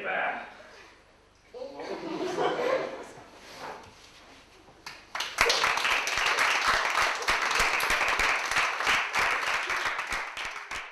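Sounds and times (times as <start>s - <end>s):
audience clapping: 4.8s - 10.9s.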